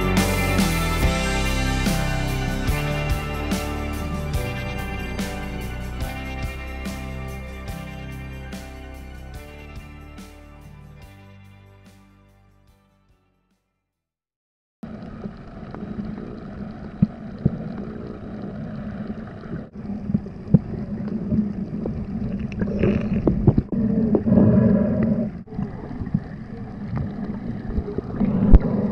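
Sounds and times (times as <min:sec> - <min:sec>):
boat engine humming: 0:00.0 - 0:10.3.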